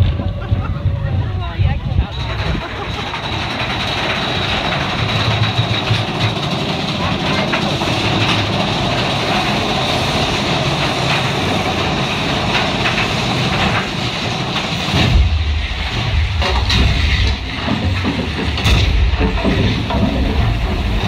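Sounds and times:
deep low rumble: 0:00.0 - 0:06.2, 0:14.8 - 0:21.0
roller coaster rattling on track: 0:00.0 - 0:21.0.

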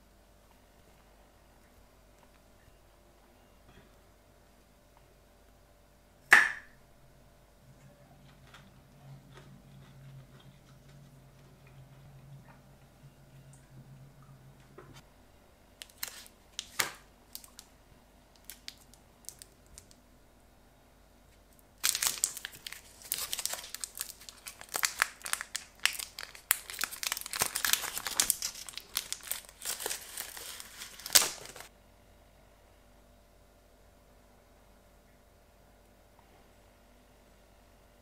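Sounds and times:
plastic wrapper crinkling and tearing: 0:15.8 - 0:17.7, 0:18.3 - 0:20.0, 0:21.8 - 0:31.7.

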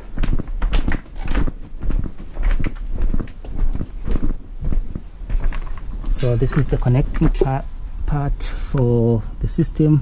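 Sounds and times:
footsteps on gravel: 0:00.0 - 0:07.6.

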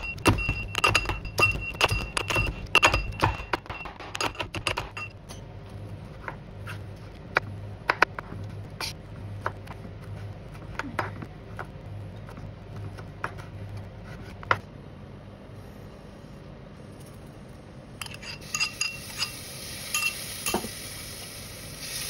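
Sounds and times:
pestle pounding in metal mortar: 0:00.0 - 0:05.1.

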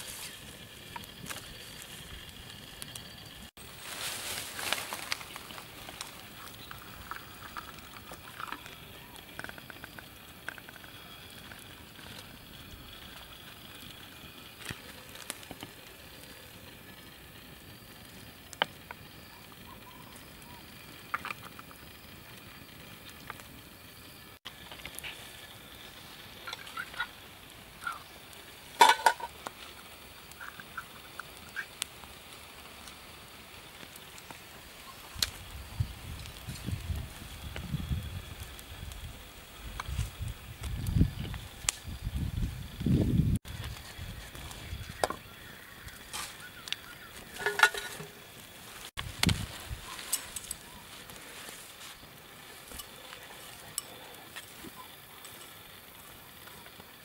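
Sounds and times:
campfire crackling softly: 0:00.0 - 0:57.0.

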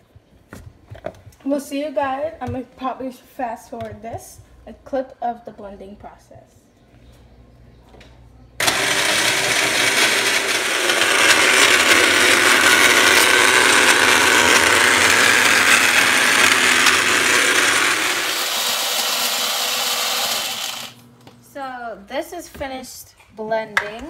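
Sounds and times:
blender blending ice: 0:08.6 - 0:21.0.

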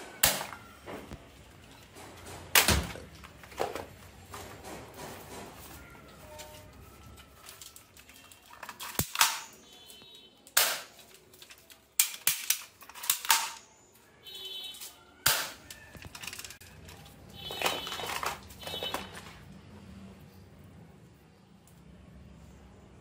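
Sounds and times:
plastic rattle: 0:06.4 - 0:09.6, 0:10.8 - 0:13.7, 0:14.8 - 0:19.4
plastic toy guns clacking: 0:07.4 - 0:09.6, 0:10.5 - 0:13.7, 0:14.8 - 0:19.3.

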